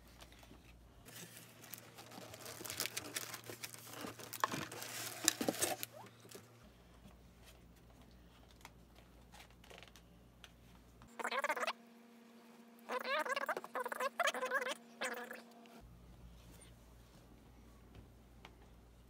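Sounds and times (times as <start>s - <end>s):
packaging crinkling and rustling: 0.0s - 6.5s, 8.4s - 10.1s.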